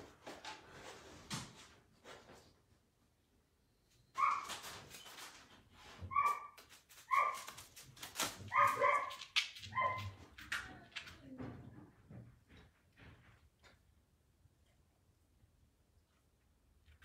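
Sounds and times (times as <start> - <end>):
puppy yapping: 4.2 - 4.6, 6.1 - 7.6, 8.4 - 10.2.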